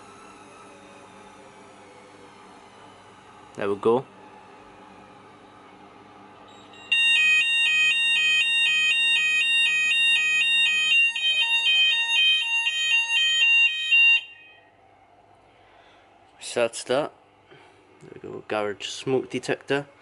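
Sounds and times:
two-tone fire alarm: 6.5s - 14.8s.

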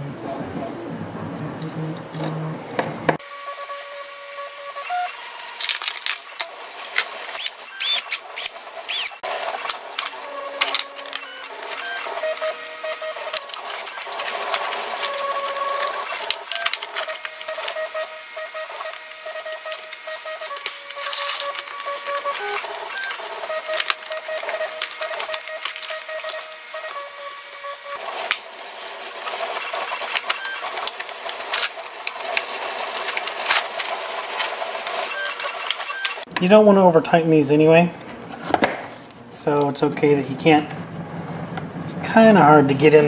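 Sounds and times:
screws and nuts clicking and rattling: 5.6s - 11.2s.

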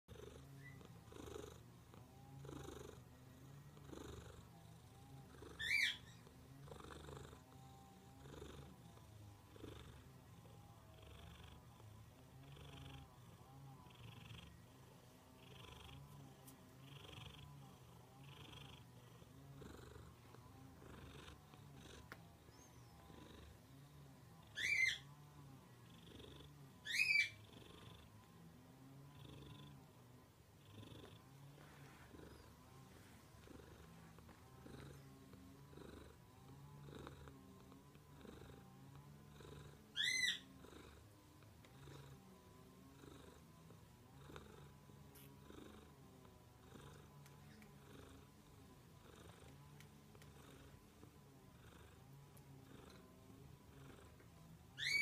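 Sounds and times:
cat purring: 0.1s - 55.0s.

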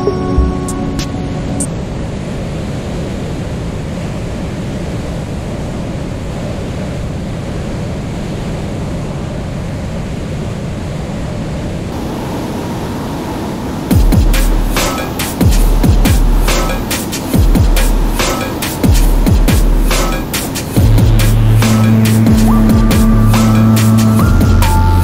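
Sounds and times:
wind rushing over camera: 1.0s - 20.9s
aircraft engine and propeller droning: 11.6s - 25.0s.

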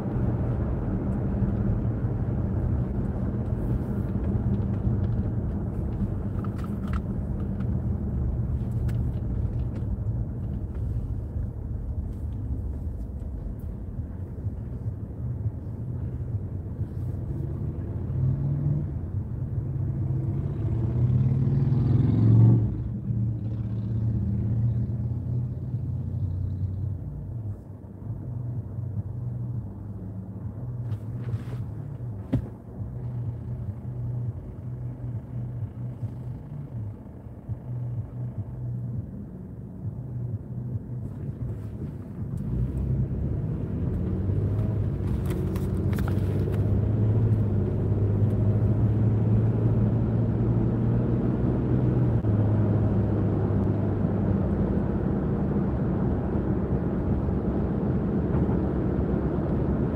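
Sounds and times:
traffic passing by: 0.0s - 59.9s
engine revving pulling away: 19.6s - 25.1s, 42.4s - 59.9s.

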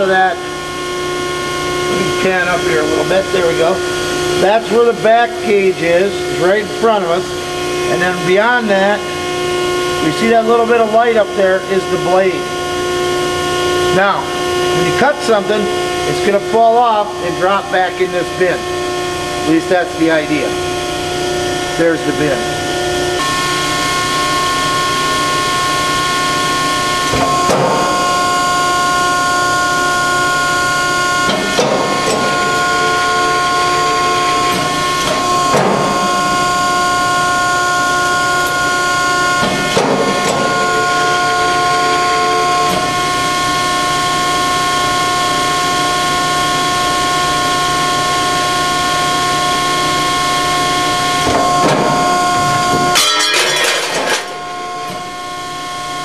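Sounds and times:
hydraulic pump whine over hum: 0.0s - 56.0s.

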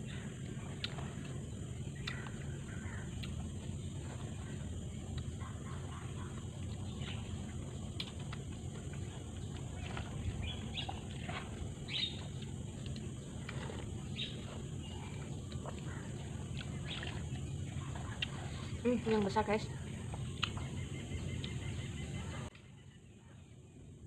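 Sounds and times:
birds chirping: 0.0s - 24.0s
low outdoor hum: 0.0s - 24.0s
slurping and chewing: 0.1s - 19.2s.

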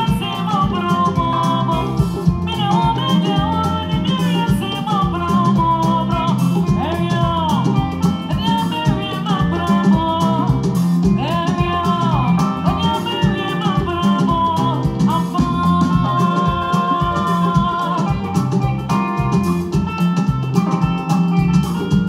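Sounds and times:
person singing: 0.0s - 20.8s
drum kit beat: 0.0s - 22.0s
keyboard: 0.0s - 22.0s.

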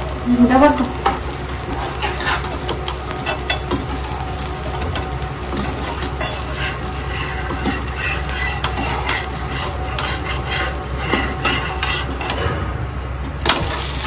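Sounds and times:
pancake sizzling on hot griddle: 0.0s - 12.4s, 13.4s - 14.0s
metal spatula scraping: 5.7s - 12.4s.

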